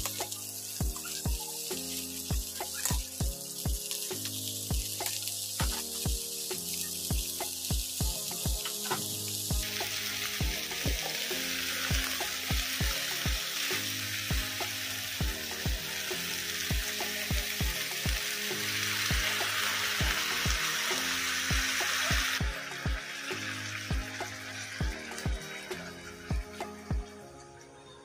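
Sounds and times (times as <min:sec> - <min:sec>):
food sizzling in a wok: 0:00.0 - 0:27.1
background music with beat: 0:00.0 - 0:28.0.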